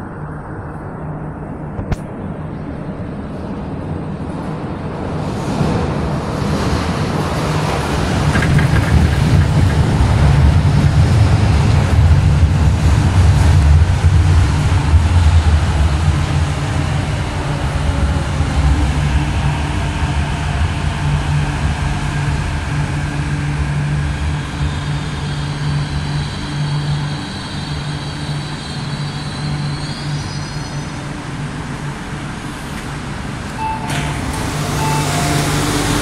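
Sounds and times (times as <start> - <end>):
train low rumble: 0.0 - 36.0
train doors opening clatter: 6.8 - 10.5, 32.6 - 36.0
high whining brakes: 32.5 - 36.0
short beep: 33.6 - 36.0.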